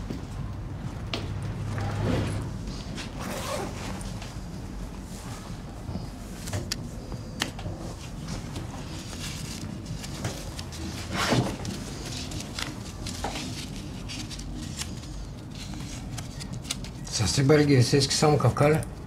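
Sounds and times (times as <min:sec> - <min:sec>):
tracksuit jacket rustling: 0:02.8 - 0:05.6.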